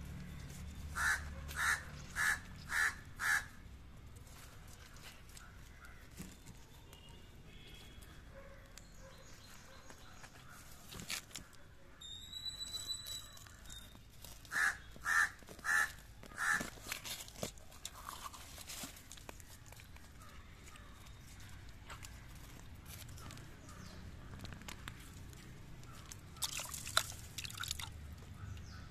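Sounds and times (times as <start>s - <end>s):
bird calling loudly: 0.9s - 3.6s, 12.0s - 16.7s
thin high whistle: 12.0s - 13.4s
hand squelching in mud: 26.0s - 28.0s.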